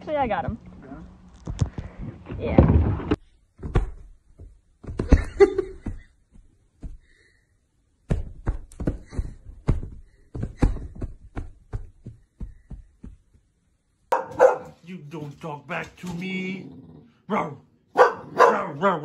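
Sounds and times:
soft thumps and taps on bed: 8.0 - 13.5.

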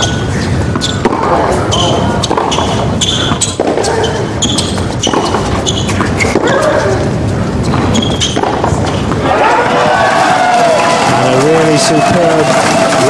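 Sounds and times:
racket striking ball: 0.0 - 6.6, 7.7 - 9.2
shoes squeaking on court: 0.0 - 9.2
arena background noise: 0.0 - 13.0
ball bounces: 0.7 - 6.8, 7.7 - 9.2.

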